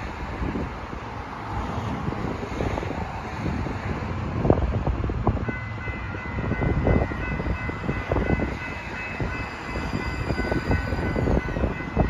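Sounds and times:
light rail train whining: 0.0 - 12.0
wind rumbling on microphone: 0.0 - 12.0.

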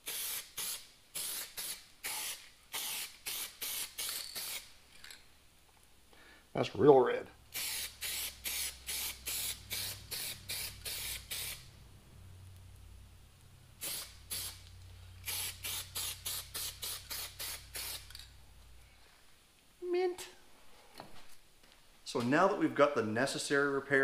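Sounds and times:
spray paint can bursts: 0.0 - 4.7, 7.5 - 11.7, 13.8 - 18.2.

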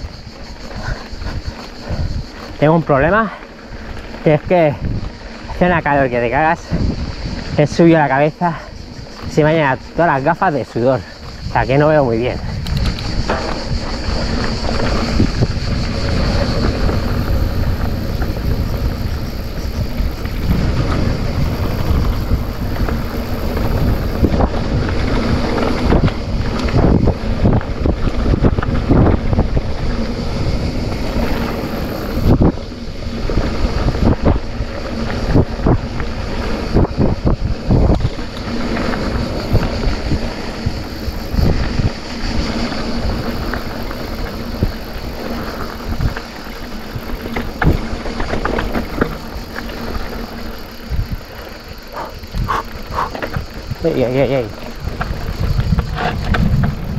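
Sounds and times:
bike tyres rumbling on dirt: 0.0 - 56.9
wind buffeting microphone: 0.0 - 56.9
bike knocks and rattles: 12.6 - 32.7, 33.5 - 56.9.

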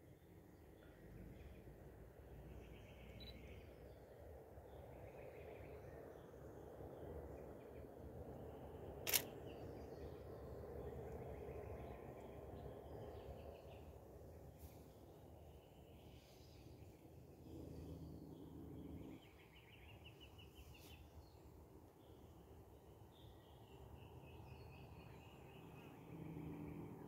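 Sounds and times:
faint outdoor background: 0.0 - 27.0
camera shutter click: 9.0 - 9.3.

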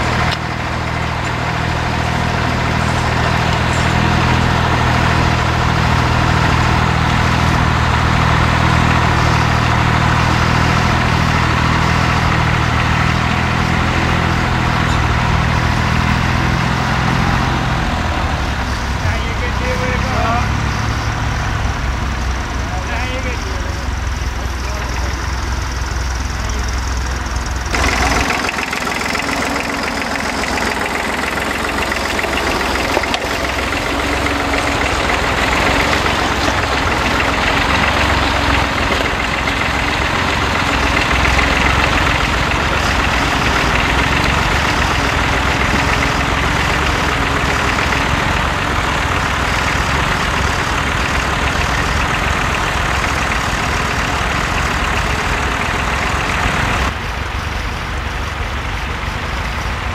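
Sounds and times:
tractor engine running: 0.0 - 59.9.

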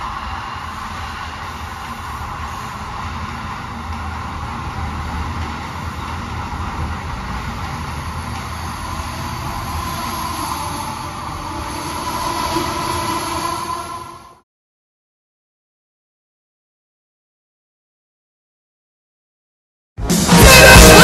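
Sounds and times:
train wheels rumbling on rails: 0.0 - 14.4
train whine: 0.0 - 14.4, 20.0 - 21.0.

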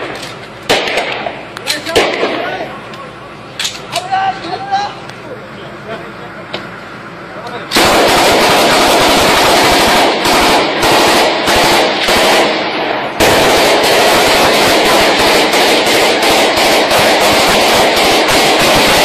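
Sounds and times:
automatic gunfire: 0.0 - 2.7, 7.7 - 19.0.

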